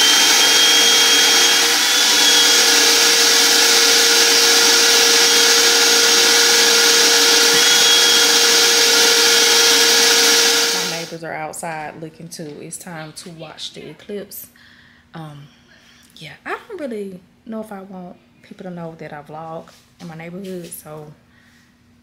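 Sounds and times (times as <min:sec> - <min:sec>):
car vacuum running: 0:00.0 - 0:11.1.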